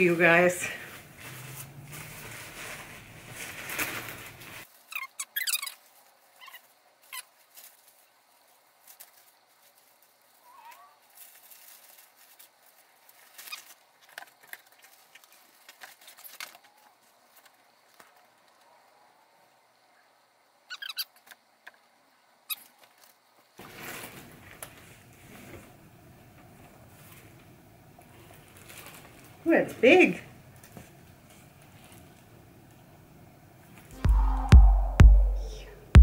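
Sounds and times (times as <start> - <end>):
plastic wrapping crinkling: 0.8 - 5.9, 11.1 - 16.7.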